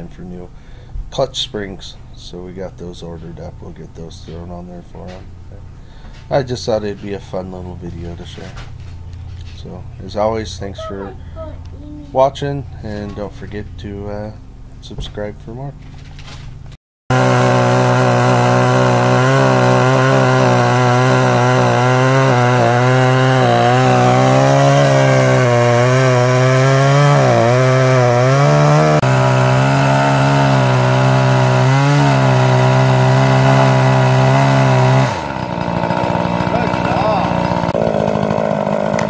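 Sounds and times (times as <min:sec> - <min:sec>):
chainsaw cutting log: 0:04.1 - 0:05.4, 0:06.0 - 0:11.6, 0:12.8 - 0:14.1, 0:17.1 - 0:39.0.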